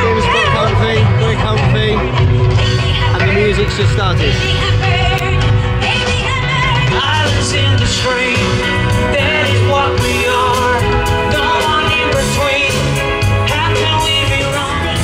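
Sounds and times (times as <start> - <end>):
lead singer: 0.0 - 15.0
live band playing: 0.0 - 15.0.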